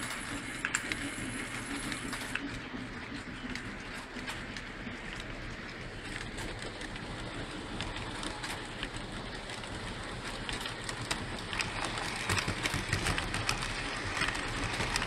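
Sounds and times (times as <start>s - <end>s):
model train motors rumbling: 0.0s - 15.0s
wheels clicking over rail joints: 3.2s - 15.0s.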